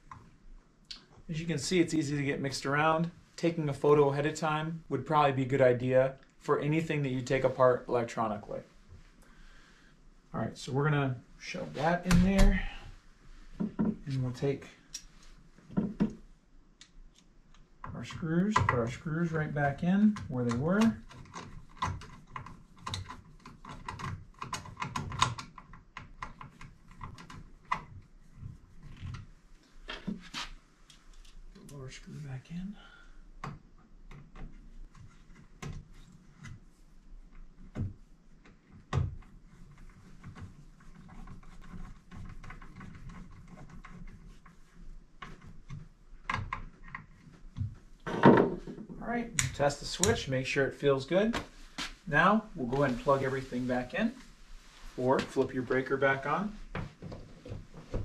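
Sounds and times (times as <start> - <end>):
faint scraping: 48.6 - 56.6.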